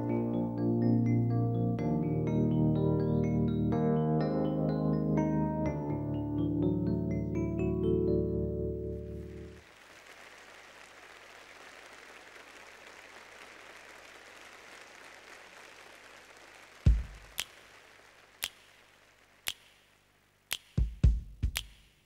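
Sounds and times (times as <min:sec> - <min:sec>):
audience applause: 0:09.1 - 0:19.4.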